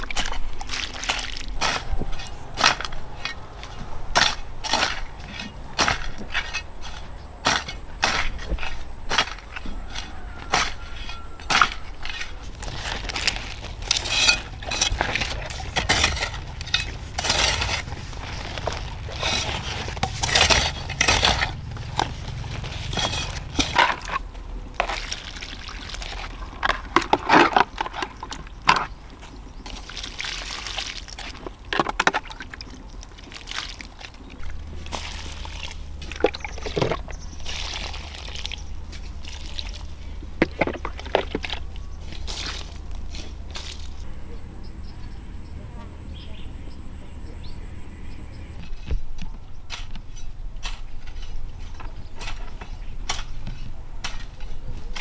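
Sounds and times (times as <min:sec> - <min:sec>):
water sloshing and pouring: 0:00.0 - 0:02.1, 0:24.8 - 0:28.8, 0:29.6 - 0:44.0
knocks and handling noises: 0:00.0 - 0:29.9, 0:31.2 - 0:33.3, 0:34.0 - 0:44.0.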